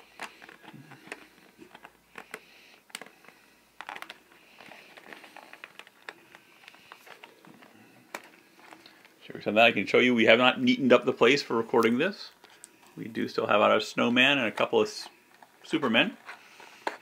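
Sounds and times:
package crinkling: 0.0s - 9.2s.

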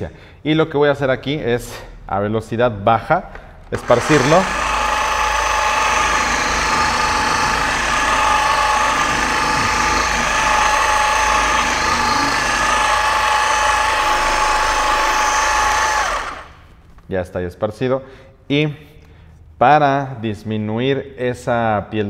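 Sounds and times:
orbital polisher motor whine: 3.7s - 16.8s.

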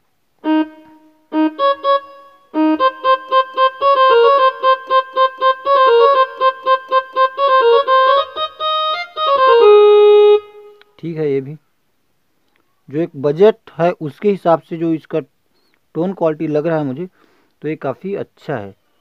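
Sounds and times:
electronic keyboard violin tone: 0.4s - 10.9s.

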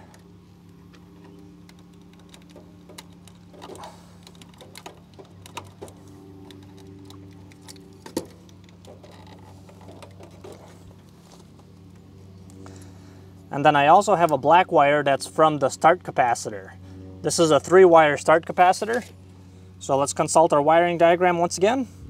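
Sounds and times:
low steady hum: 0.0s - 22.0s
wires and connector rattling: 0.8s - 12.0s.

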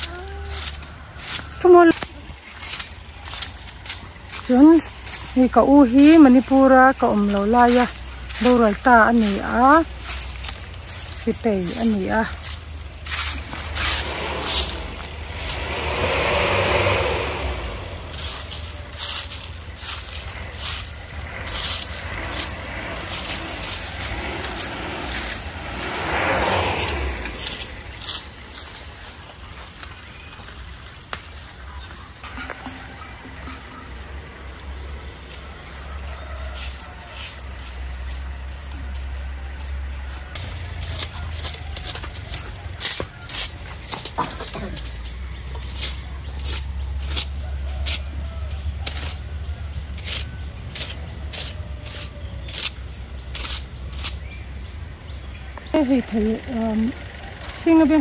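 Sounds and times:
hand broom swishing: 0.0s - 28.6s
insects droning: 0.0s - 58.0s
rushing noise: 11.8s - 28.9s.

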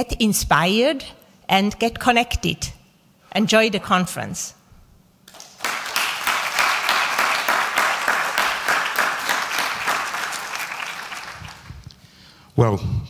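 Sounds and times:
audience applauding: 5.3s - 11.9s.

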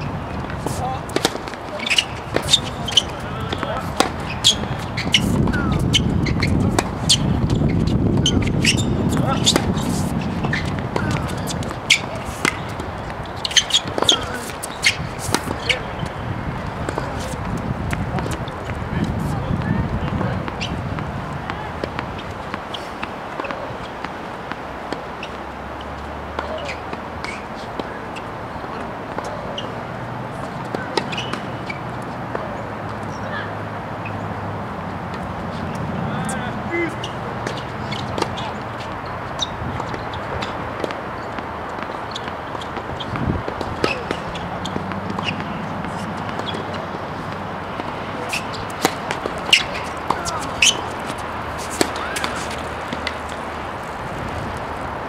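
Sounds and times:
faint distant voices: 0.0s - 7.0s, 9.0s - 24.0s, 43.4s - 55.0s
outdoor background noise: 0.0s - 55.0s
tennis balls struck and bouncing: 0.0s - 55.0s.

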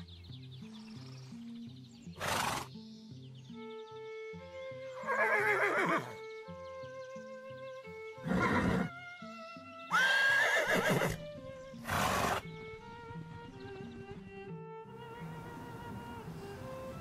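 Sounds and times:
soft background music: 0.0s - 17.0s
horses neighing: 2.2s - 2.7s, 5.0s - 6.2s, 8.2s - 8.9s, 9.9s - 11.2s, 11.8s - 12.4s.

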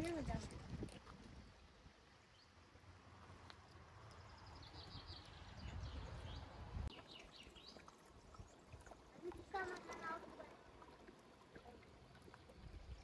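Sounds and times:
babble of a rocky stream: 0.0s - 2.3s, 6.9s - 13.0s
small birds chirping: 4.0s - 10.5s.

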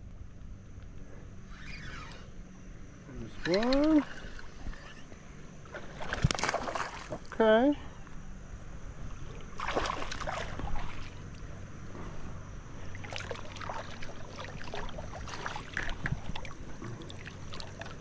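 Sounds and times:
water splashing and sloshing: 3.4s - 7.7s, 9.0s - 18.0s.

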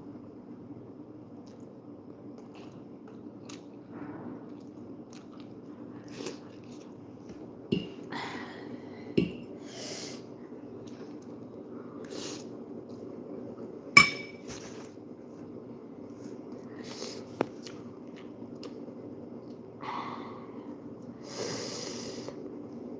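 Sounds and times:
steady low hum: 0.0s - 22.9s
person chewing and slurping noodles: 4.4s - 7.0s.

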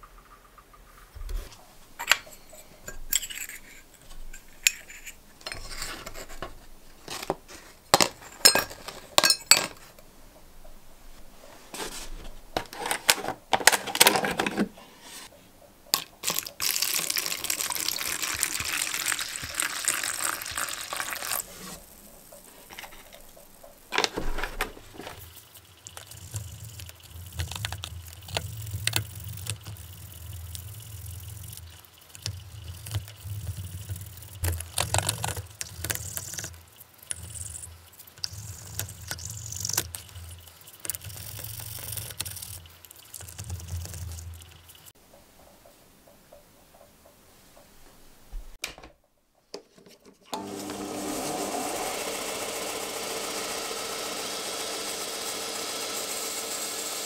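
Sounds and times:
water pouring into plastic tub: 16.2s - 21.9s
toothbrush scrubbing: 24.9s - 45.0s.

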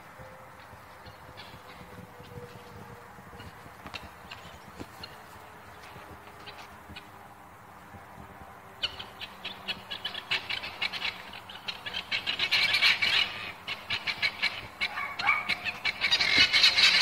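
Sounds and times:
guinea fowl rattling calls: 8.8s - 17.0s.

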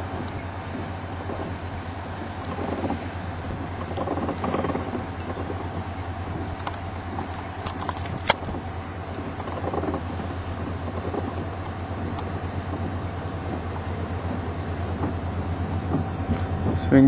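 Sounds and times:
tornado roar: 0.0s - 17.0s.

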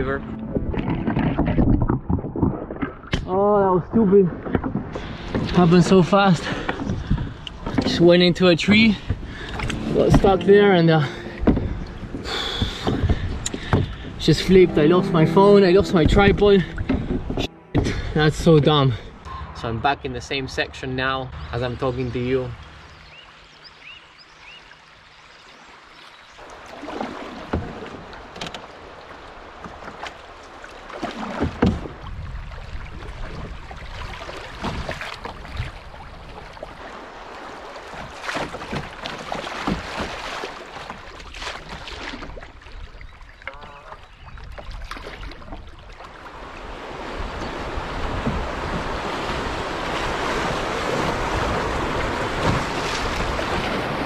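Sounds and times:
paddle strokes splashing: 0.0s - 18.1s, 25.5s - 54.0s
rushing white water: 3.3s - 17.5s, 18.2s - 42.4s, 46.1s - 54.0s
sharp knocks: 11.4s - 14.2s.

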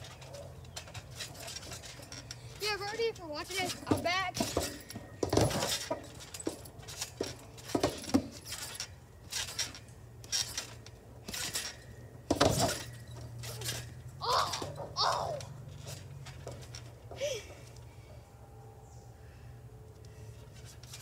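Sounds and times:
trampoline springs thudding and jingling: 0.0s - 21.0s.

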